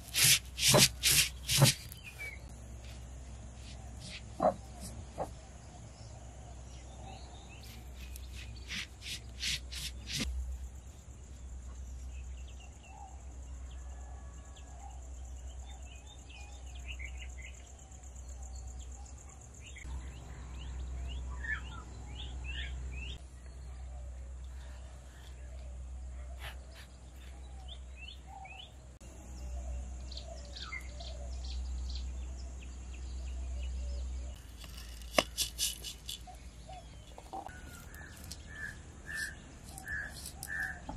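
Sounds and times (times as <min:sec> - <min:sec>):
birds chirping and calling: 0:03.5 - 0:10.3, 0:19.6 - 0:28.8, 0:29.4 - 0:40.9.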